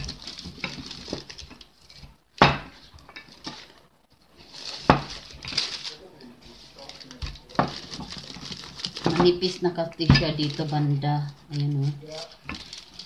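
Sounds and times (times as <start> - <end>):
dough and paper rustling: 0.0 - 13.0
rolling pin knocking on table: 2.4 - 2.8.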